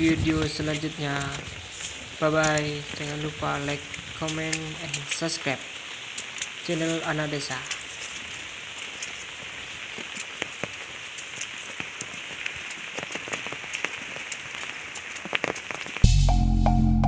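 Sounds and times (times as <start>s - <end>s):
heavy rain: 0.0s - 16.3s
sharp raindrop hits: 0.0s - 16.6s.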